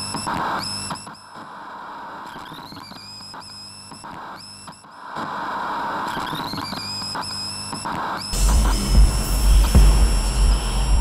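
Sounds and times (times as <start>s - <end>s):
hissing noise: 8.3s - 11.0s
low steady hum: 8.4s - 11.0s.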